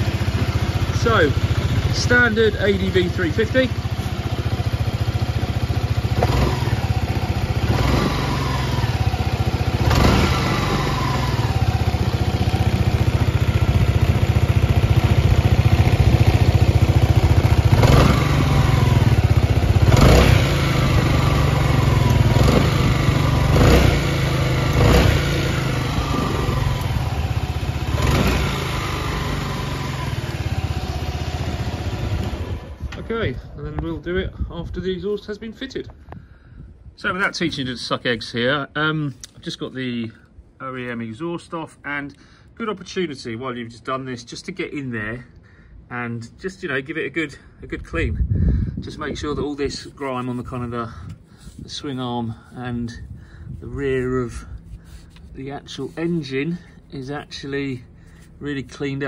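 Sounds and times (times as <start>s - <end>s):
scooter engine idling: 0.0s - 33.8s.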